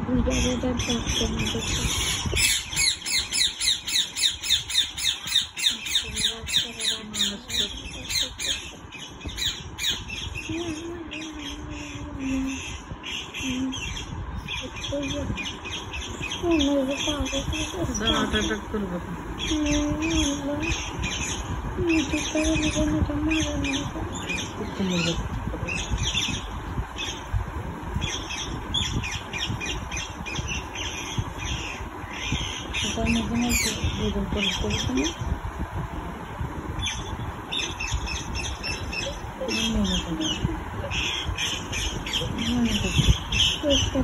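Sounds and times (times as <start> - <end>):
steady low rumble: 0.0 - 44.0
parrots squawking and chirping: 0.3 - 35.2, 36.8 - 44.0
parrot squawking: 0.9 - 10.4.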